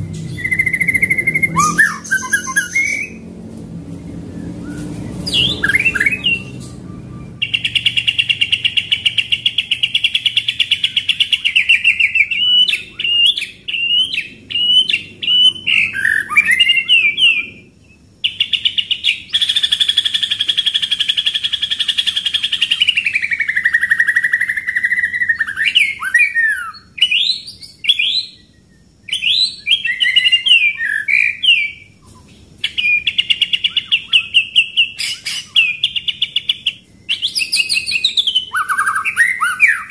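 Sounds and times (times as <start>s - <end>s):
bird whistled phrases: 0.0s - 3.2s, 4.3s - 39.9s
bird rattling song: 0.0s - 17.6s, 18.2s - 26.5s.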